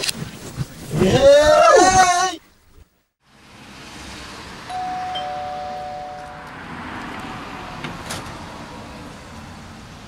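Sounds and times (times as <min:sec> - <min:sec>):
two-note doorbell chime: 0:04.7 - 0:06.6.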